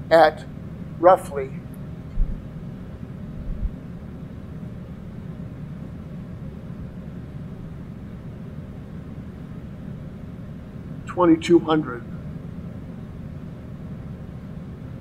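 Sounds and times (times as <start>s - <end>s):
air conditioner rumble: 0.0s - 15.0s
dull low thumps: 2.1s - 2.6s, 3.4s - 3.9s.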